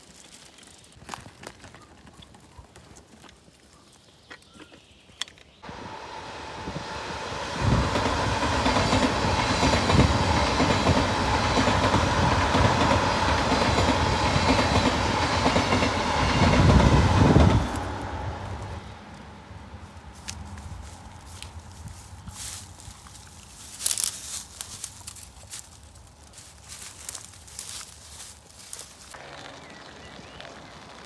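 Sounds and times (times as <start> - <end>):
wind buffeting microphone: 5.7 - 18.6
tyres rumbling on track: 26.3 - 31.0.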